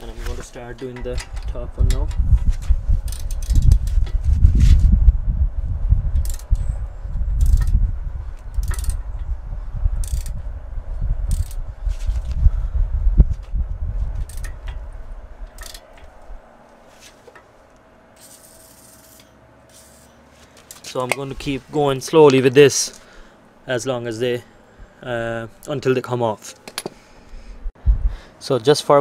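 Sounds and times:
heavy low rumble: 0.0 - 16.9, 27.5 - 28.2
socket wrench clicking: 3.0 - 4.2, 6.2 - 6.6, 7.4 - 7.8, 8.4 - 9.1, 10.0 - 10.4, 11.3 - 11.6, 14.2 - 14.8, 15.5 - 16.1.

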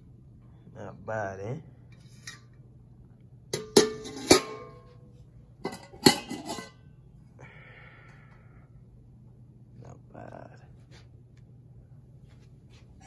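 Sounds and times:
metal plate covers clanking: 3.5 - 5.0, 5.6 - 6.8.

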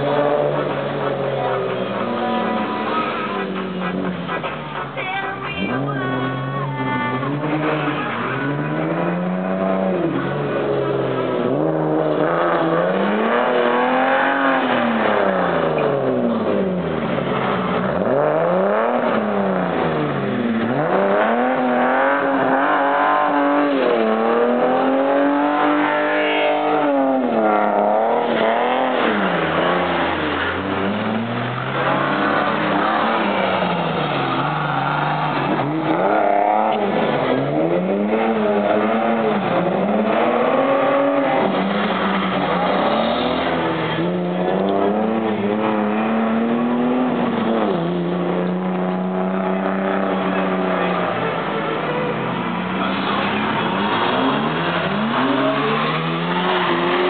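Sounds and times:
car engine revving hard: 7.1 - 57.0.

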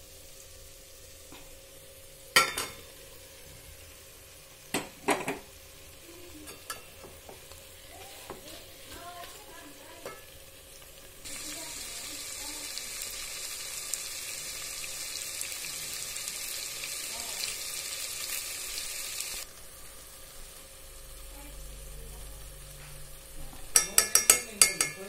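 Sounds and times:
greens sizzling in a metal pot: 0.0 - 25.0
metal spoon tapping a pot: 2.4 - 2.8, 6.4 - 7.4, 10.0 - 10.3, 23.7 - 25.0.

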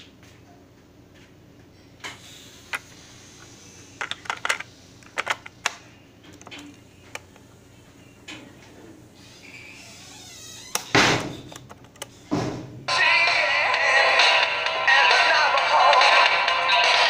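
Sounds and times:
plastic cassette clicking: 4.0 - 6.6.

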